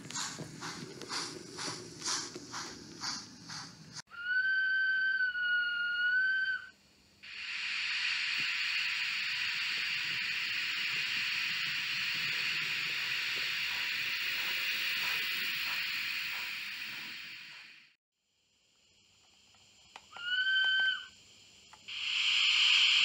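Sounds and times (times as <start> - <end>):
steam hiss: 0.0 - 4.0, 7.2 - 18.0, 21.7 - 23.0.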